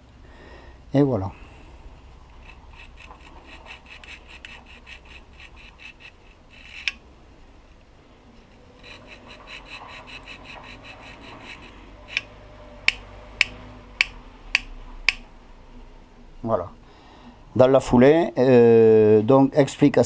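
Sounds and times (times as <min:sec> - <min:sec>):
nail file rasping on metal: 0:02.3 - 0:07.0, 0:08.8 - 0:15.2
sharp click: 0:12.9 - 0:15.3.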